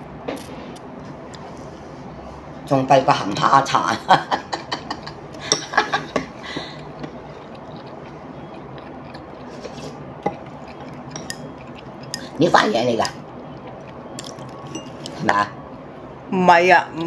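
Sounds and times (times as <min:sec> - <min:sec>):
chopsticks clinking on ceramic bowl: 0:05.4 - 0:05.9, 0:10.2 - 0:12.3, 0:14.2 - 0:15.2.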